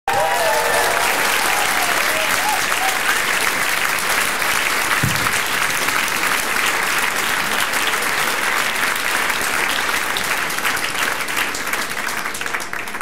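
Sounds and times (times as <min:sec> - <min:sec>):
audience applauding: 0:00.0 - 0:13.0
short low thump: 0:05.0 - 0:05.5.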